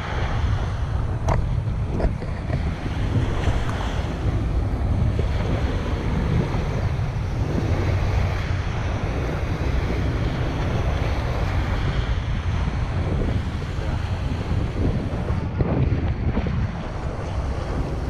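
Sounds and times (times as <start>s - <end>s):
small waves breaking: 0.0s - 18.0s
wind buffeting microphone: 0.0s - 18.0s.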